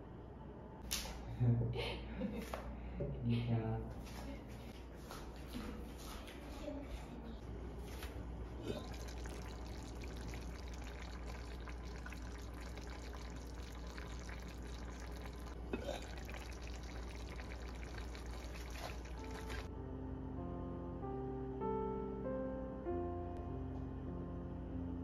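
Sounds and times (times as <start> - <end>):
low steady hum: 6.4 - 21.6
sauce bubbles popping: 8.6 - 19.7.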